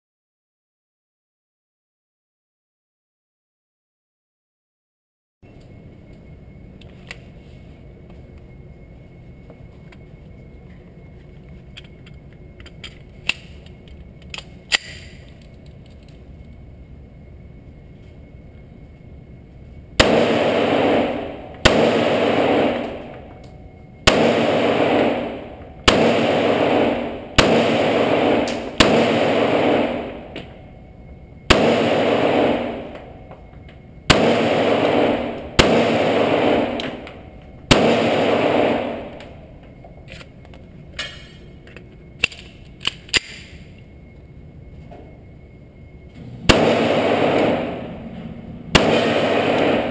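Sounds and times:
pistol shots ringing indoors: 12.7 - 15.4, 20.0 - 40.4, 42.2 - 43.8, 46.2 - 49.9.

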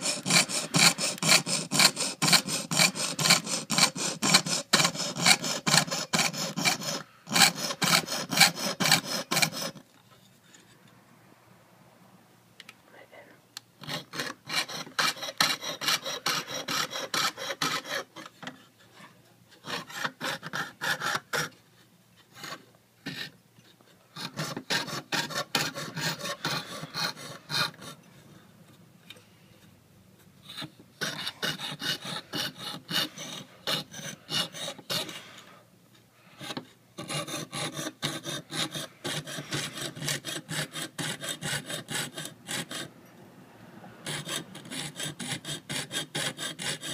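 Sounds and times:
hand saw cutting metal sheet: 0.0 - 9.8, 13.8 - 18.5, 19.6 - 21.6, 24.1 - 28.1, 30.4 - 35.5, 36.4 - 43.0, 44.0 - 46.9.

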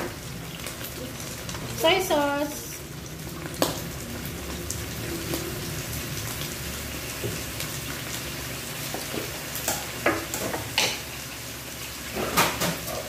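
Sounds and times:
meat sizzling in pan: 0.0 - 13.0.

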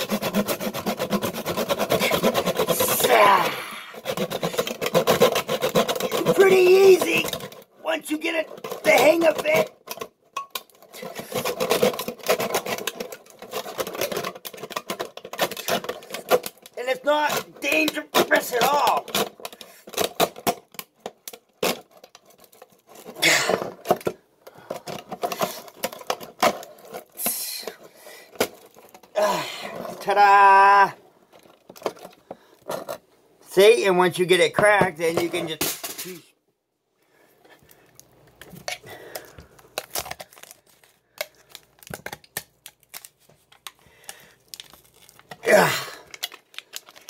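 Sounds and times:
handsaw scraping tin can lid: 0.0 - 24.0, 24.9 - 30.2.

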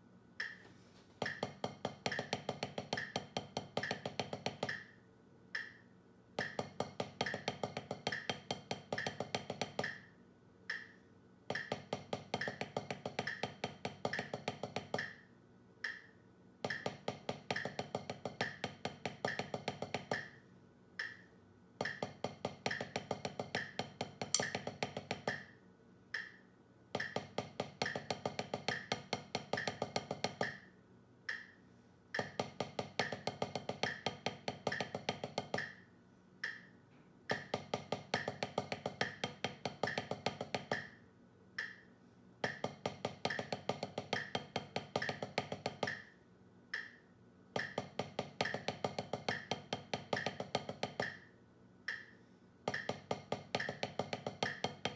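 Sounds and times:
drumsticks on practice pad: 0.4 - 10.1, 10.7 - 15.2, 15.8 - 20.4, 21.0 - 25.5, 26.1 - 30.7, 31.3 - 31.6, 36.4 - 41.0, 41.6 - 46.1, 46.7 - 47.0, 51.9 - 54.9
metronome click: 5.6 - 5.8.

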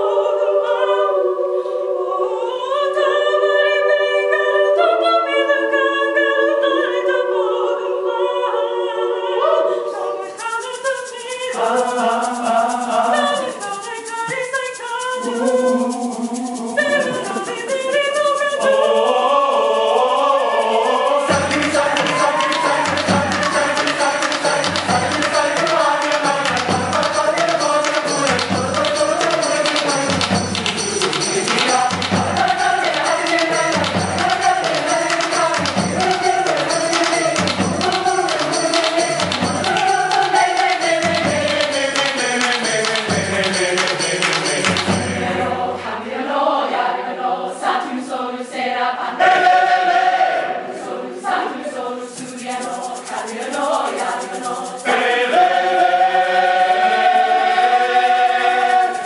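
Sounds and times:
mixed choir singing: 0.0 - 59.0
hand drums: 10.4 - 18.9, 20.9 - 45.7
deep drum beat: 21.3 - 45.4.

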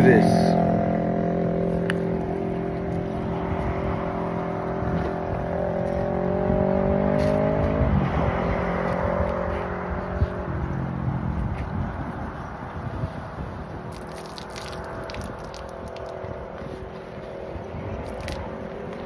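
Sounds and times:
vehicle engine running: 0.0 - 13.9.

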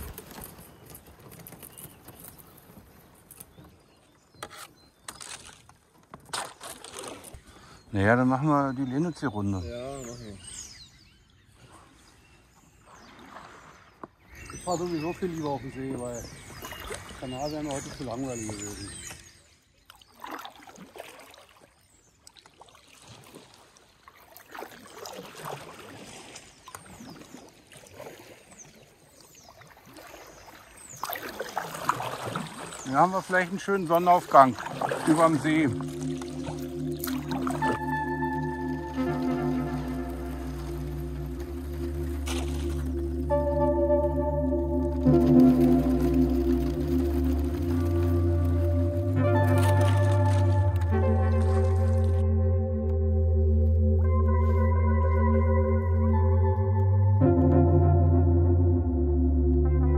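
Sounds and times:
paddle splashing in water: 0.0 - 7.8, 11.6 - 15.4, 16.1 - 52.3
sharp ice cracks: 4.6 - 7.4.

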